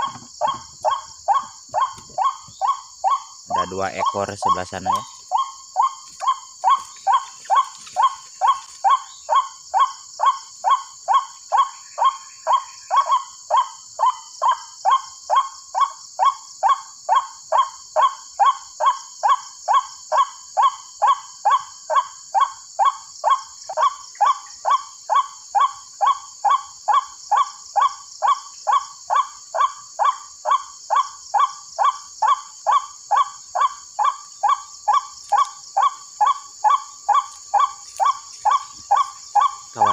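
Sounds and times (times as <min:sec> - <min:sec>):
recorded bird call through loudspeaker: 0:03.5 - 0:05.1.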